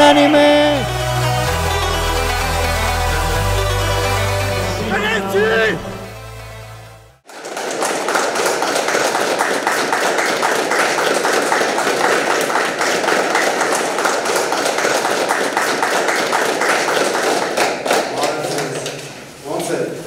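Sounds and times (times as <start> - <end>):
children applauding: 0.0 - 3.0, 7.3 - 19.0.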